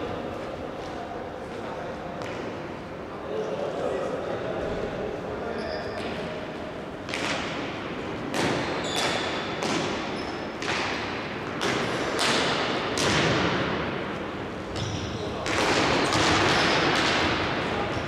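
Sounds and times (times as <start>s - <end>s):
hockey sticks striking ball: 7.1s - 7.6s, 8.2s - 13.8s, 14.8s - 17.6s.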